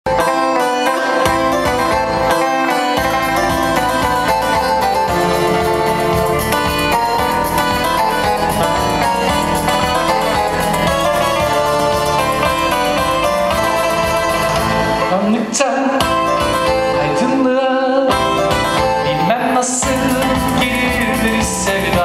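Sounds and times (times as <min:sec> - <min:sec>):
acoustic guitar playing: 0:00.0 - 0:22.0
deeper musical accompaniment: 0:00.1 - 0:15.4.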